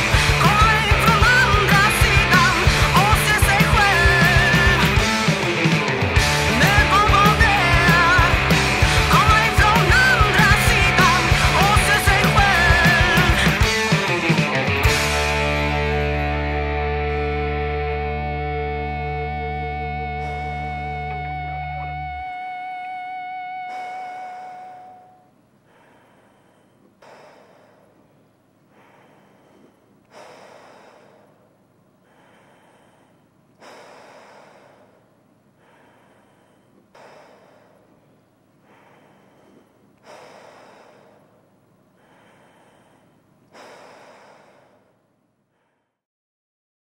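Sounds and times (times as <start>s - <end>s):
deep human breathing: 0.0s - 16.1s, 16.9s - 46.0s
lingering guitar note: 13.4s - 25.2s.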